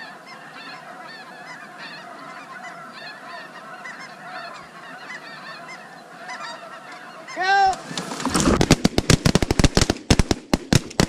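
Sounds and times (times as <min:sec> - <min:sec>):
geese honking: 0:00.0 - 0:08.3.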